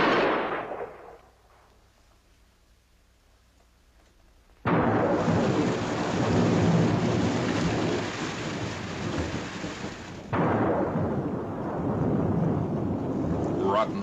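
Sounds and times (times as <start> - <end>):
thunder rumbling: 0.0 - 1.7, 4.6 - 14.0
heavy rain: 4.7 - 14.0.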